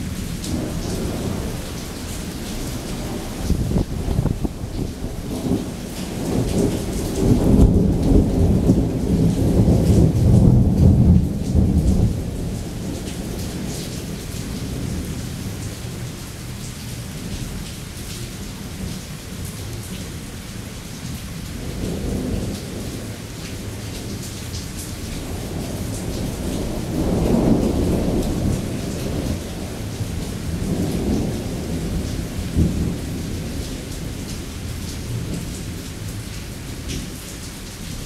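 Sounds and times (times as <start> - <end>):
steady rain: 0.0 - 38.0
thunder rolling: 2.6 - 13.2.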